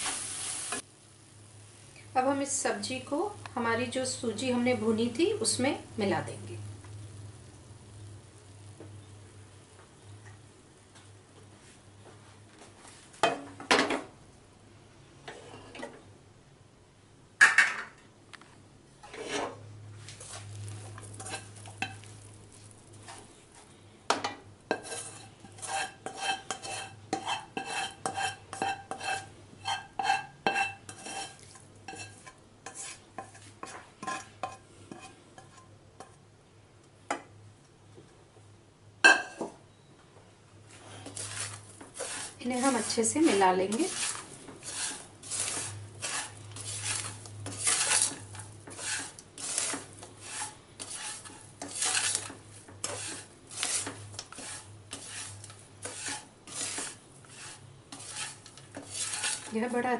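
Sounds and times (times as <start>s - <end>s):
spatula scraping pans: 15.3s - 16.0s, 19.0s - 36.2s, 40.8s - 59.9s.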